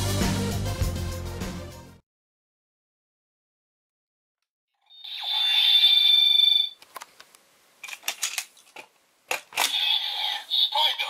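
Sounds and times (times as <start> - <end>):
toy belt electronic sound effects: 4.9 - 6.7, 9.6 - 11.0.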